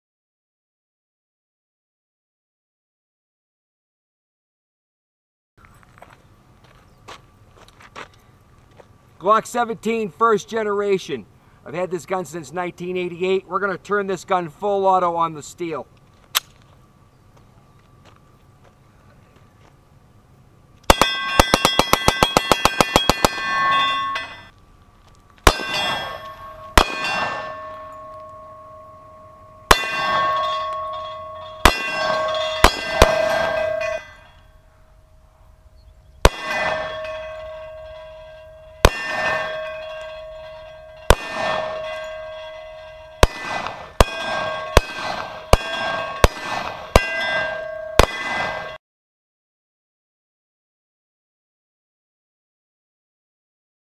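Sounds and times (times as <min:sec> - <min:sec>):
rapid pistol shots: 0:20.9 - 0:23.6, 0:25.4 - 0:26.2, 0:26.8 - 0:27.5, 0:31.6 - 0:33.6, 0:36.2 - 0:36.9, 0:41.1 - 0:41.8, 0:43.2 - 0:47.0, 0:48.0 - 0:48.7
single pistol shots: 0:20.9 - 0:23.7, 0:25.4 - 0:27.6, 0:31.6 - 0:33.8, 0:36.2 - 0:37.0, 0:41.1 - 0:41.8, 0:43.2 - 0:47.0, 0:48.0 - 0:48.7
steel plates ringing: 0:20.9 - 0:24.6, 0:25.4 - 0:48.8.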